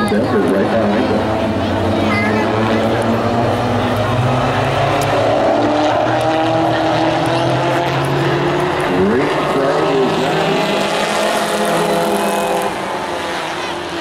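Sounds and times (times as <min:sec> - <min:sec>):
race truck engines running hard: 0:00.0 - 0:14.0.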